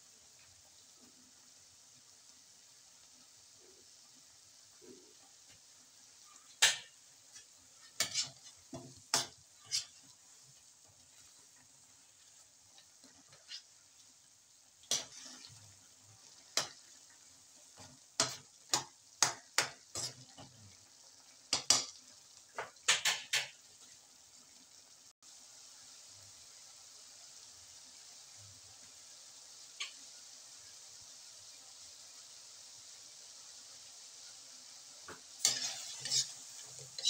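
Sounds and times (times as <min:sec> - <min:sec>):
sauce sizzling: 0:00.0 - 0:37.0
metal utensil scraping a wok: 0:06.3 - 0:13.9, 0:14.8 - 0:17.0, 0:19.6 - 0:20.6, 0:35.4 - 0:37.0.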